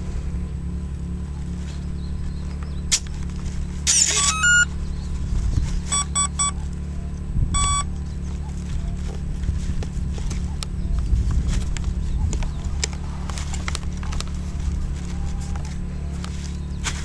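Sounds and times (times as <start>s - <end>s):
low rumble: 0.0s - 17.0s
electronic beeps: 3.9s - 4.7s, 5.9s - 6.6s, 7.5s - 7.9s
stepped electronic tones: 3.9s - 4.7s, 5.8s - 6.6s, 7.5s - 7.9s.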